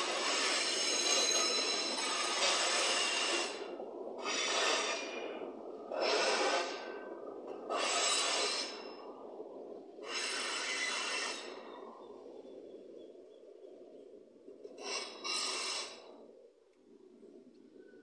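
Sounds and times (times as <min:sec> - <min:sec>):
freight train rumbling: 0:00.0 - 0:09.2
hissing rush of train: 0:00.0 - 0:09.2, 0:09.9 - 0:11.9.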